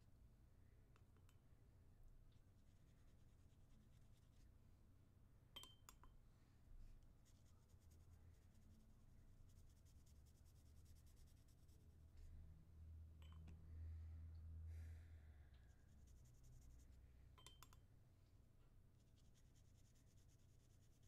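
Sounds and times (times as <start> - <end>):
small clicks: 17.4 - 17.9
pencil scratching on paper: 19.0 - 21.0.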